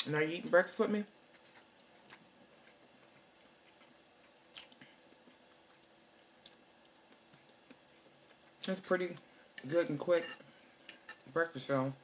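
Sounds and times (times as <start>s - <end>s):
quiet chewing: 1.4s - 8.8s
faint mouth clicks: 4.5s - 4.9s.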